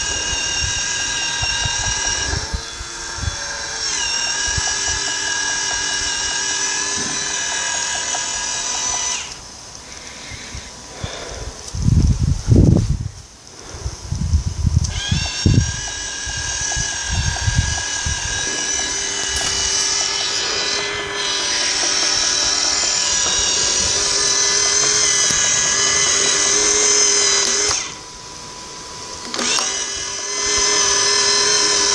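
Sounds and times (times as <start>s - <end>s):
robot electric motors whining: 0.0s - 31.9s.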